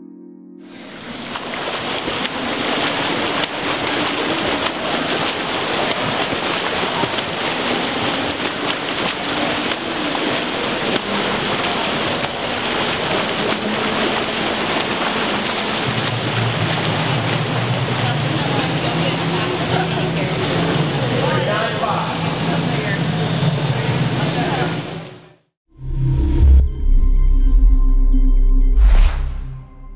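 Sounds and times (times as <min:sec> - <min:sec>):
swimmers splashing water: 0:00.8 - 0:23.0.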